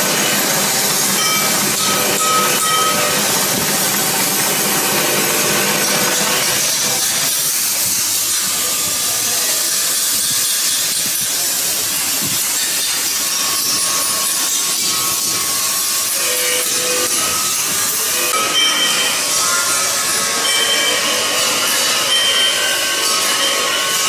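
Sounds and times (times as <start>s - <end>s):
metal lathe hissing: 0.0s - 24.0s.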